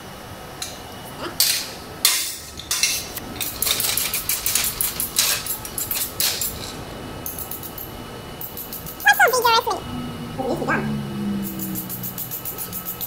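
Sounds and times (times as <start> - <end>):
wire brush scrubbing metal: 1.4 - 7.8.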